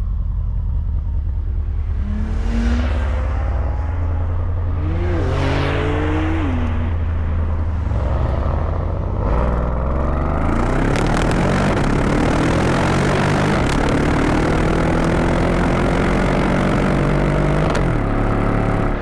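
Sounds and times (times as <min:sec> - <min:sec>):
vehicle engine accelerating: 0:00.0 - 0:19.0.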